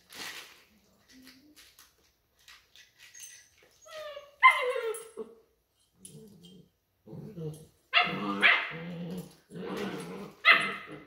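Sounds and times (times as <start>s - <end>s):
puppy yelping: 3.8s - 5.4s, 10.4s - 11.0s
puppies growling: 6.1s - 11.0s.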